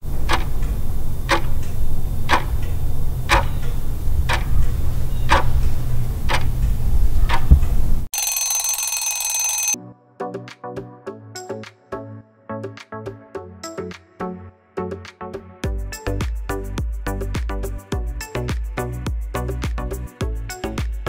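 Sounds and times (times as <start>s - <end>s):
clock ticking: 0.2s - 1.7s, 2.3s - 5.7s, 6.3s - 6.6s
alarm clock bell ringing: 8.1s - 9.8s.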